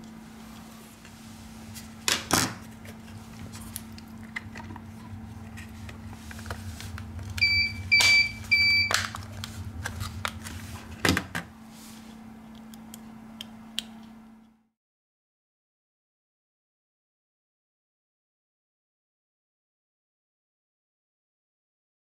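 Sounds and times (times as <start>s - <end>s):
steady low hum: 0.0s - 14.7s.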